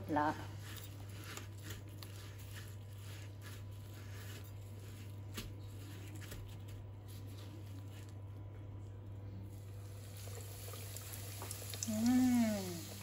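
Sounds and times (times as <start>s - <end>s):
breadcrumbs rustling and crunching: 0.4s - 9.0s.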